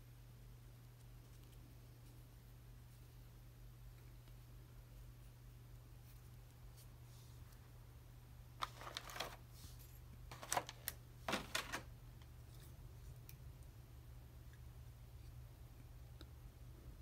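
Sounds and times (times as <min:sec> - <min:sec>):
low steady hum: 0:00.0 - 0:17.0
plastic clicks and rustles: 0:10.3 - 0:11.9.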